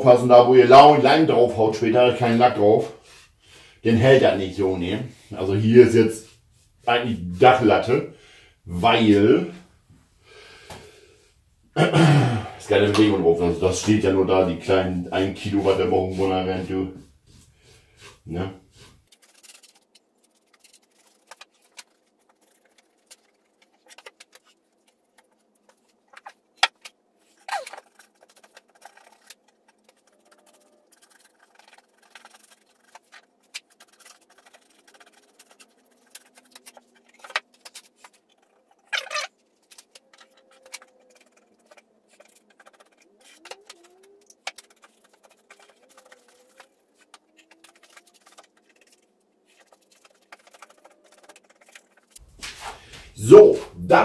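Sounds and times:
paintbrush and wooden boxes clicking: 12.7 - 53.0.

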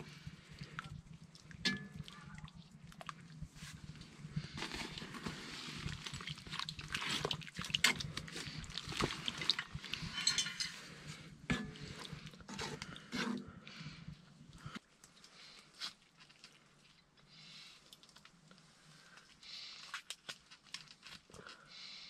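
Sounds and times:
metal utensils scraping a pot: 9.4 - 13.4.

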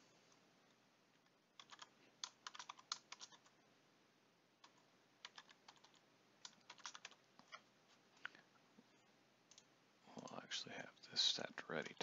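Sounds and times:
typing on keyboard: 1.6 - 3.5, 4.6 - 7.2.

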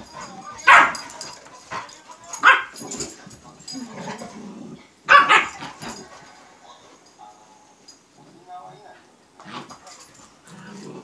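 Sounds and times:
puppies barking: 2.4 - 2.8, 5.1 - 6.0.

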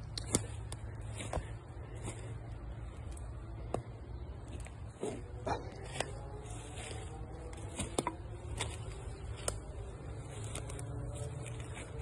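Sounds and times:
twigs snapping: 0.0 - 4.8, 5.6 - 12.0
steady low rumble: 0.0 - 12.0.

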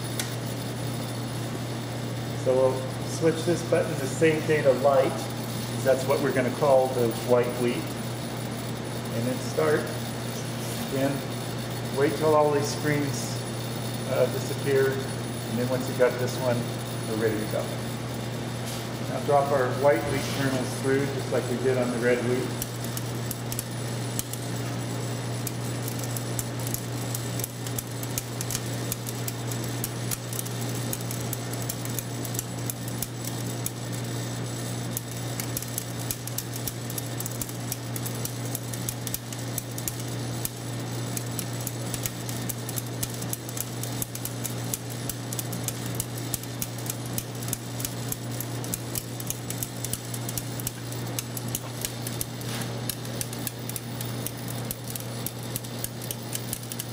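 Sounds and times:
vibratory feeder humming: 0.0 - 56.9.

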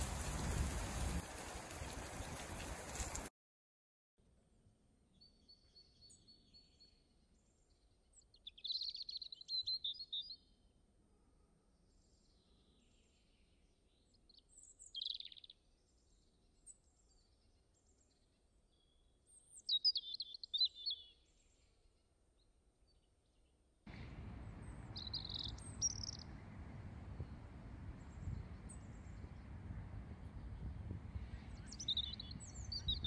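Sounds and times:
wild birds calling: 23.9 - 29.6
steady low rushing noise: 23.9 - 32.6.

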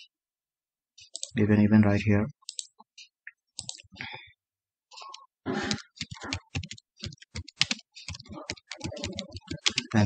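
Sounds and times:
keyboard typing: 1.0 - 1.4, 2.4 - 3.9, 4.9 - 10.0.

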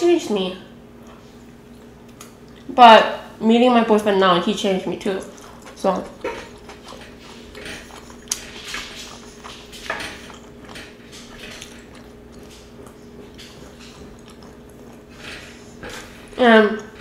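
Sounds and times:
faint steady hum: 0.0 - 17.0
chewing: 5.0 - 17.0.

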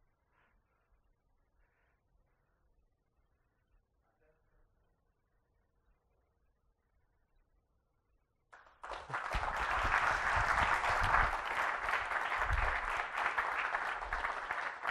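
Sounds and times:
audience applauding: 8.6 - 14.9.

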